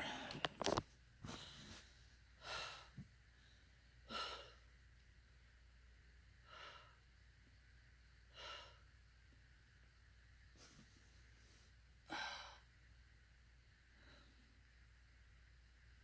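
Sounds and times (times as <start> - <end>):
faint hissing breaths: 1.2 - 4.9, 6.2 - 9.2, 10.4 - 15.1.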